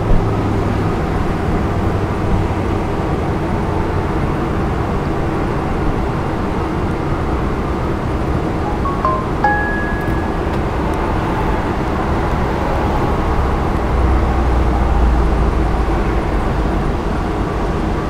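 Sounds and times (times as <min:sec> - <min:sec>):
outdoor traffic noise: 0:00.0 - 0:18.0.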